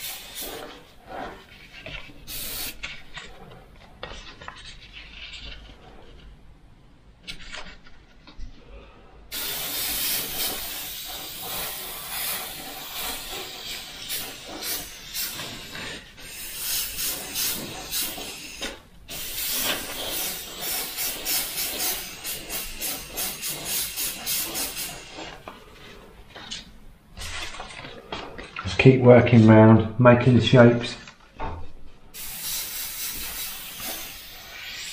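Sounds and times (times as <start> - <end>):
airbrush spraying hiss: 0.0 - 1.2, 2.3 - 2.9, 9.3 - 25.5, 32.1 - 34.9.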